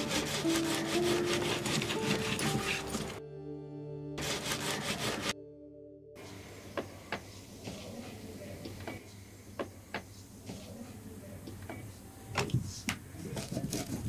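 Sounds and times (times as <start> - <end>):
knife cutting brittle on wooden board: 13.3 - 14.0.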